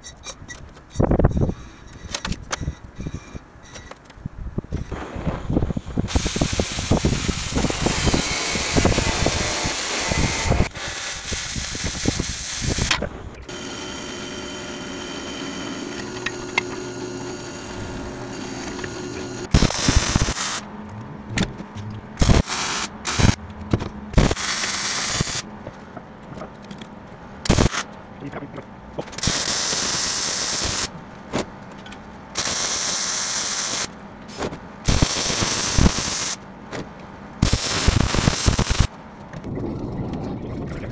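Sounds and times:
cutting torch hissing and crackling: 0:04.9 - 0:20.6, 0:22.2 - 0:23.4, 0:24.2 - 0:25.4, 0:27.5 - 0:27.8, 0:29.2 - 0:30.9, 0:32.4 - 0:33.9, 0:34.8 - 0:36.4, 0:37.4 - 0:38.9
drill press motor hum: 0:13.5 - 0:20.5
short sharp noise bursts: 0:17.6 - 0:20.7, 0:22.1 - 0:23.4, 0:24.1 - 0:25.5, 0:27.5 - 0:27.9.

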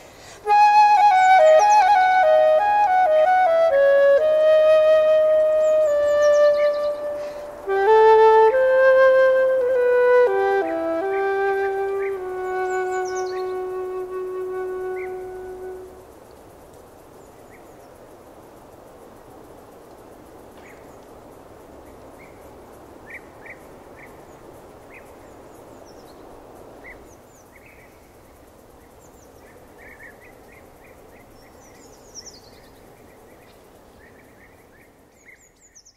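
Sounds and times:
steady background hiss: 0:00.0 - 0:35.9
small birds chirping: 0:12.0 - 0:13.8, 0:23.1 - 0:35.9.

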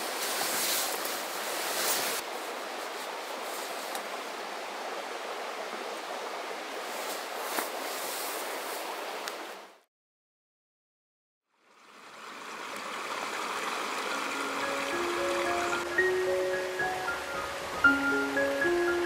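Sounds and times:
brief rustle: 0:00.0 - 0:02.2, 0:07.0 - 0:08.9
river stream rushing: 0:00.0 - 0:09.8, 0:11.6 - 0:19.0.

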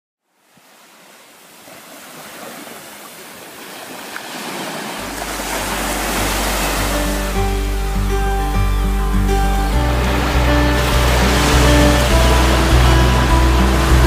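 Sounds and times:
sea surf washing on beach: 0:00.4 - 0:14.0
low bass note of music: 0:05.0 - 0:14.0.

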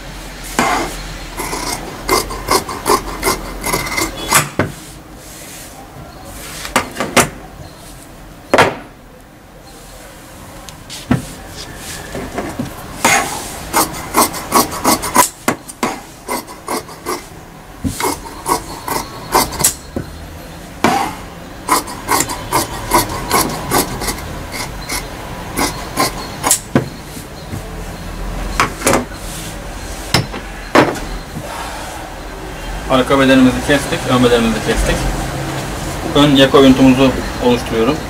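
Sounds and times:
shears snipping fabric: 0:13.0 - 0:17.3, 0:17.9 - 0:19.8, 0:21.7 - 0:25.0.

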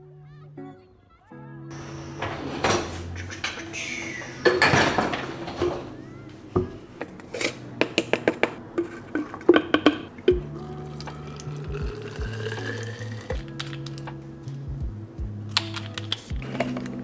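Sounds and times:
dishes and cutlery clattering: 0:01.7 - 0:06.0, 0:07.0 - 0:10.2
powder canister clicking open: 0:13.4 - 0:14.1, 0:15.5 - 0:17.0.

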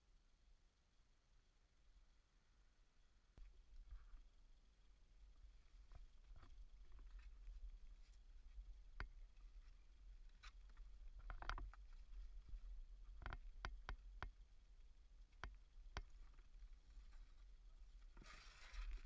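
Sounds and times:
faint clicks and knocks: 0:05.4 - 0:19.0.

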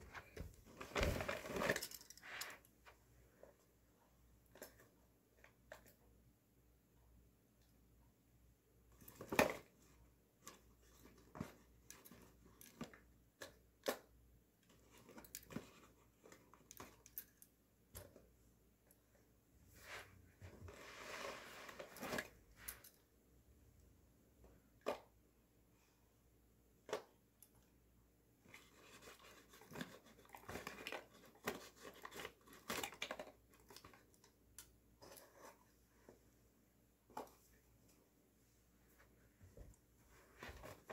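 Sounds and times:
paper and plastic clicks and rustles: 0:00.1 - 0:02.7, 0:28.4 - 0:35.7.

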